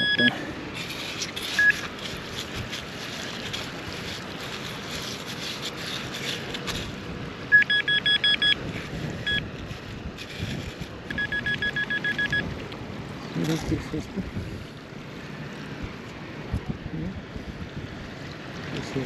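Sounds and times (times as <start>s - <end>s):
metal detector beeping: 0.0s - 0.4s, 1.6s - 1.9s, 7.5s - 8.6s, 9.2s - 9.5s, 11.1s - 12.5s
digging in soil: 0.0s - 7.2s, 8.6s - 12.3s
wind on microphone: 14.2s - 14.7s.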